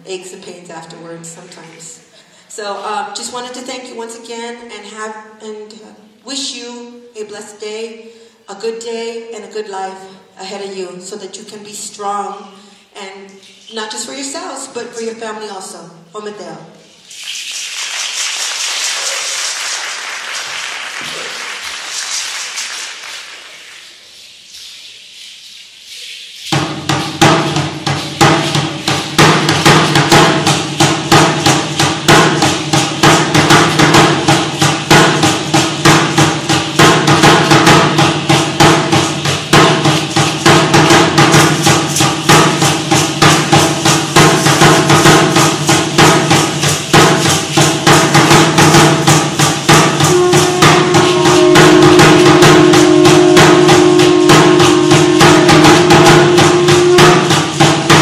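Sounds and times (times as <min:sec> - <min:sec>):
fast drum beat: 0:26.5 - 0:58.0
steady held note: 0:50.0 - 0:57.6.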